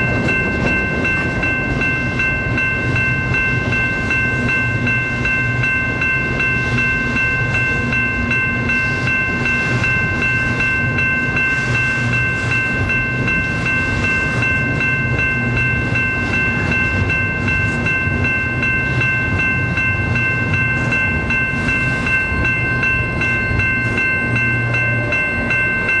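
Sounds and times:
steady high ringing: 0.0s - 26.0s
train cars rumbling past: 0.0s - 26.0s.

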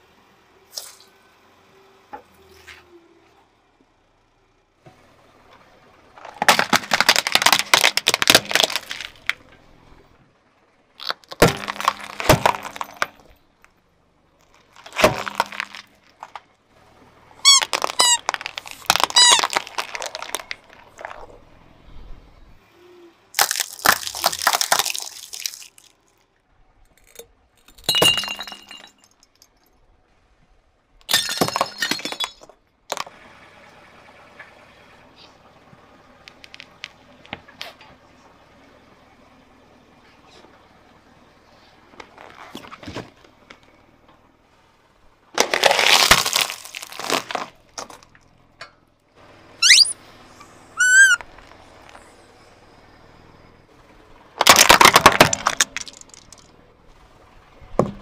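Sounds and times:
tyre crushing plastic toys: 6.2s - 9.4s, 11.0s - 13.4s, 14.4s - 16.4s, 17.4s - 21.4s, 23.4s - 26.2s, 31.0s - 33.1s, 45.4s - 48.2s, 50.8s - 52.0s, 54.4s - 56.5s, 57.8s - 58.0s
rubber balls squeaking: 11.0s - 13.4s, 17.4s - 21.5s, 49.6s - 52.3s.

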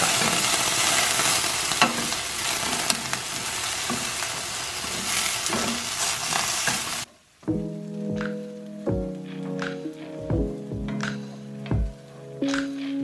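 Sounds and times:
potatoes sizzling in oil: 0.0s - 7.1s
wooden spatula scraping a pan: 3.8s - 7.1s.

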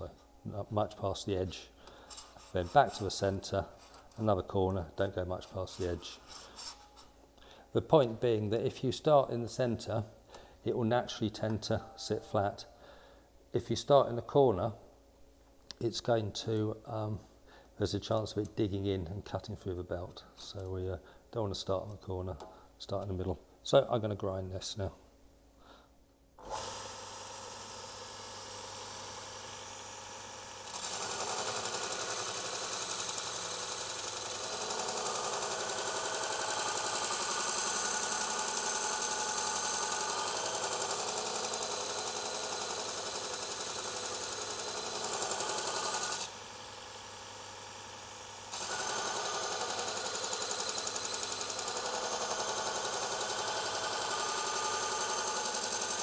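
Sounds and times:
belt sander motor running: 26.4s - 56.0s.

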